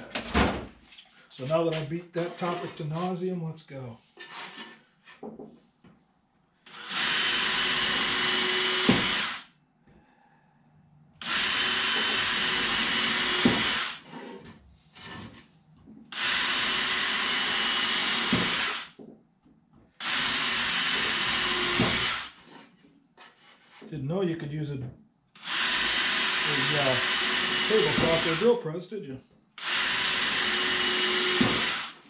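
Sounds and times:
cordless drill running: 0:06.7 - 0:09.5, 0:11.2 - 0:14.1, 0:16.1 - 0:19.0, 0:20.0 - 0:22.4, 0:25.4 - 0:28.5, 0:29.6 - 0:32.0.

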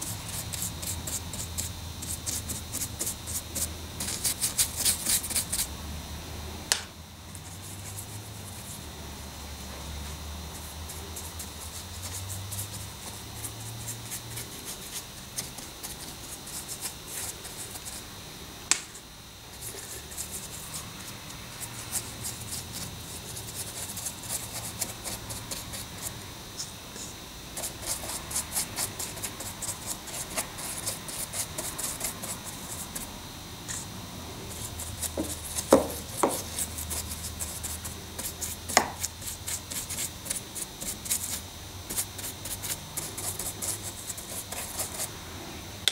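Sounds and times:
scratchy paintbrush strokes: 0:00.0 - 0:05.7, 0:19.5 - 0:33.1, 0:34.5 - 0:45.1
sharp brush taps: 0:34.9 - 0:37.1.

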